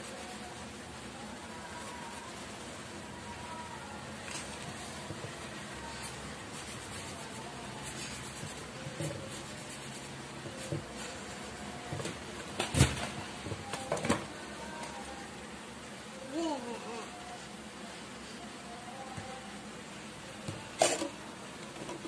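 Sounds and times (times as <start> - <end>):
room hiss: 0.0 - 11.6.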